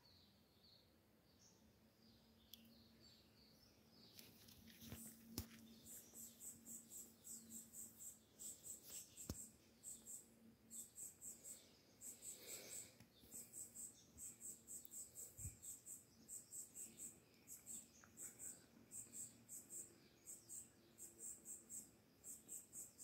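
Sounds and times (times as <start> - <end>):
insect chirping: 4.8 - 23.0.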